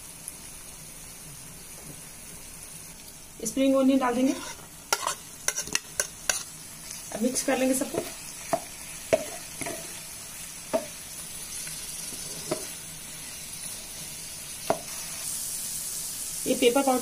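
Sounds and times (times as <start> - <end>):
sauce sizzling in a frying pan: 0.0 - 17.0
spatula knocking against pan: 8.0 - 9.8, 10.7 - 11.0.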